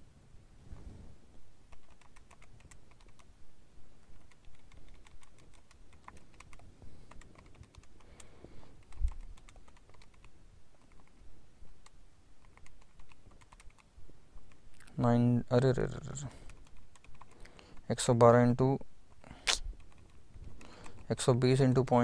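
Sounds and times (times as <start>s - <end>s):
calculator keys clicking: 1.7s - 3.3s, 4.1s - 11.2s, 11.8s - 14.6s, 16.4s - 17.9s, 19.8s - 21.2s.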